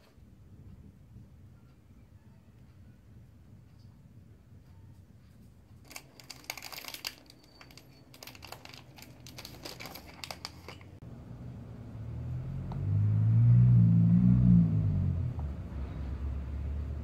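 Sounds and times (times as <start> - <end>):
plastic packets crinkling: 5.8 - 11.0.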